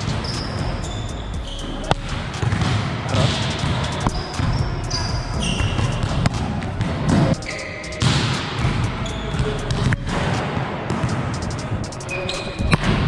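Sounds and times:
sneaker squeaks on court floor: 0.2 - 1.8, 2.4 - 6.3, 7.1 - 10.0, 12.0 - 13.0.

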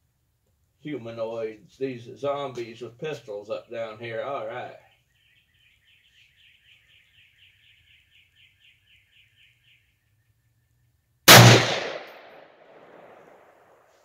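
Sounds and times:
bird trilling: 4.8 - 9.9
rifle shot: 11.3 - 13.8.

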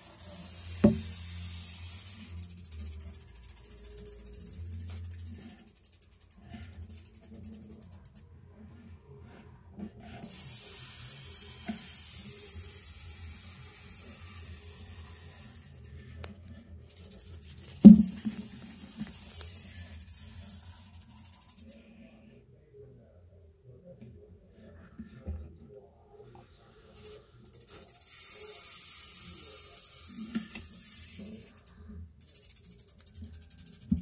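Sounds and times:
rattlesnake rattle buzzing: 0.0 - 8.2, 10.3 - 15.9, 16.9 - 21.8, 27.0 - 34.0.

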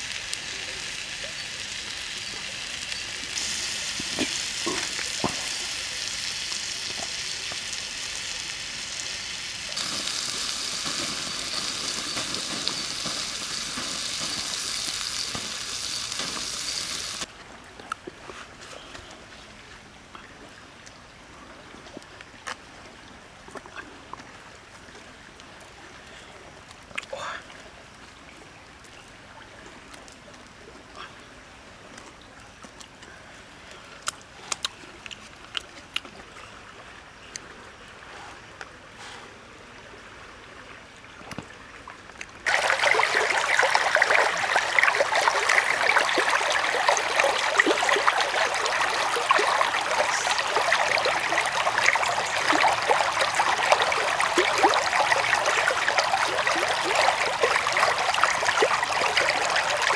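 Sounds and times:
stream rushing: 42.4 - 59.9.

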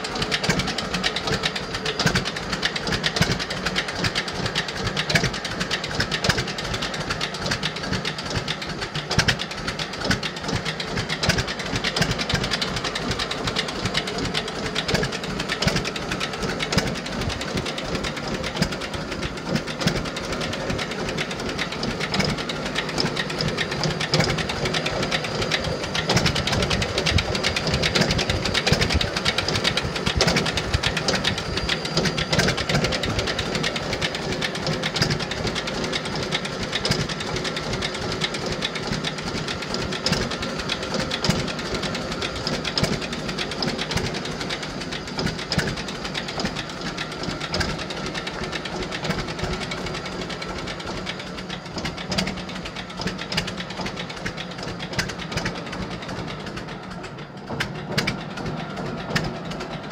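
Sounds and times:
two-cylinder engine idling: 0.0 - 59.9.

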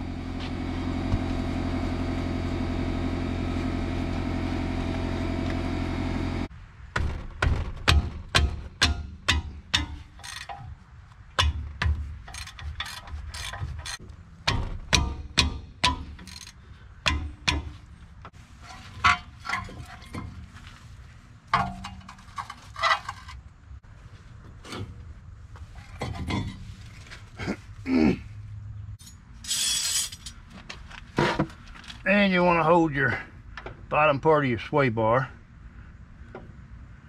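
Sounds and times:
metal tools clanking: 9.3 - 10.8, 11.4 - 14.8, 15.8 - 17.8, 18.6 - 20.5, 21.5 - 23.4, 25.8 - 27.1, 29.0 - 30.5
ratchet wrench clicking: 9.8 - 10.6, 12.3 - 14.0, 16.2 - 16.6.

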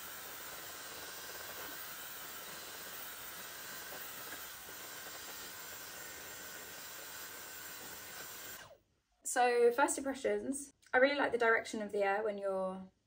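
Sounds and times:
hair dryer blowing: 0.0 - 8.7.

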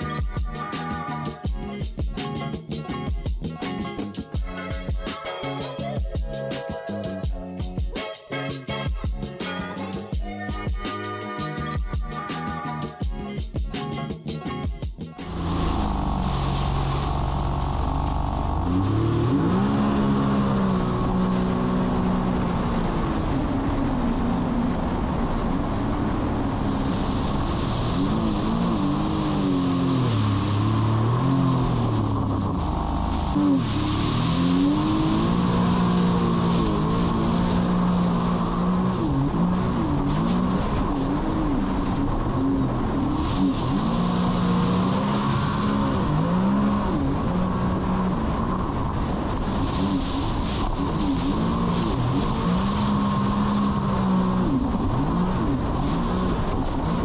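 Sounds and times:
rushing water and wind: 14.5 - 57.0
jet ski engine running: 15.3 - 57.0
water spray rushing: 26.8 - 38.4.

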